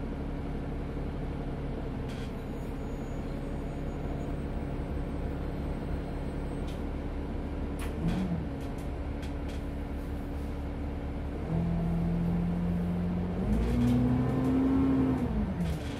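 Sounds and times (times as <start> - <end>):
bus engine running: 0.0 - 15.9.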